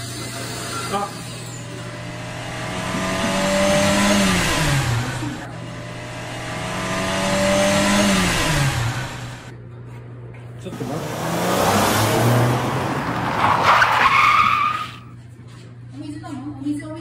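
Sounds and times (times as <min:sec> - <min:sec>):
car speeding past: 0:01.6 - 0:09.5, 0:10.7 - 0:14.0.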